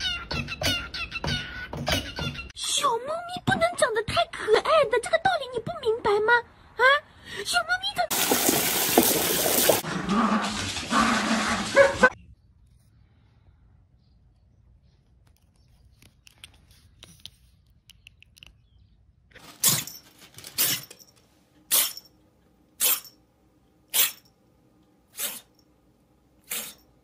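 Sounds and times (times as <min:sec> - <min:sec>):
kitten sneezing: 0:22.8 - 0:23.1, 0:23.9 - 0:24.2, 0:25.1 - 0:25.5, 0:26.4 - 0:26.8.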